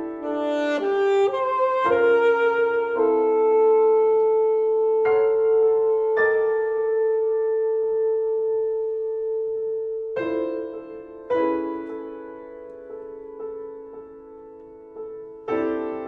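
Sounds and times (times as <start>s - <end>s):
wind instrument long note: 0.0s - 12.2s
piano chords: 0.0s - 16.0s.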